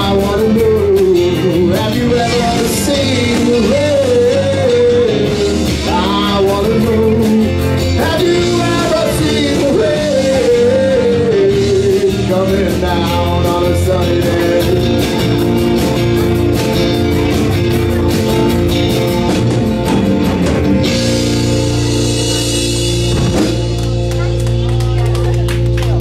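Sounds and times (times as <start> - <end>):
lead vocal: 0.0 - 15.7
live rock band playing: 0.0 - 26.0.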